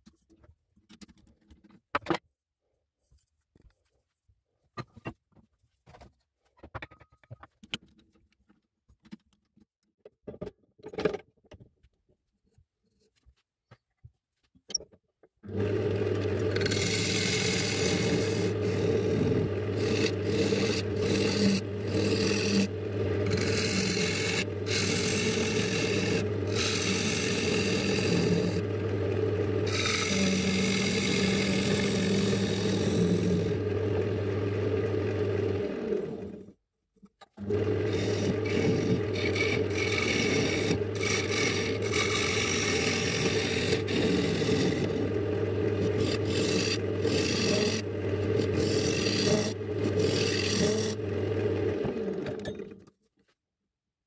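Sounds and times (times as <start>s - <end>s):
wood lathe motor hum: 15.5s - 36.5s, 37.4s - 52.7s
tool scraping spinning wood: 15.5s - 36.6s, 37.4s - 52.8s.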